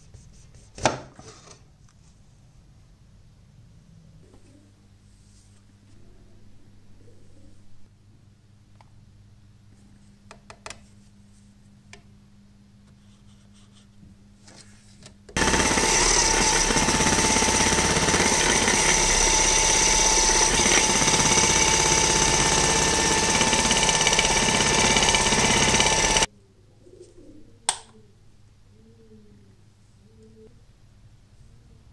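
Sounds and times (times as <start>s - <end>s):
angle grinder cutting plastic pipe: 15.4s - 26.3s.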